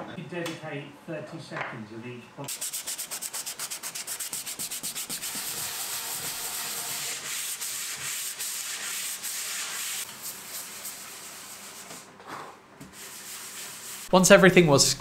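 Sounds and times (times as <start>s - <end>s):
hand sanding wood: 2.5s - 12.0s, 12.8s - 14.1s.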